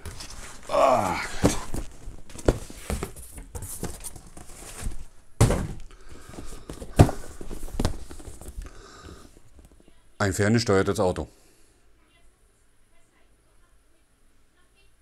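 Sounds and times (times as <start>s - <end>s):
cardboard rustling: 0.0s - 9.8s
dull knocks on cardboard boxes: 1.4s - 8.6s.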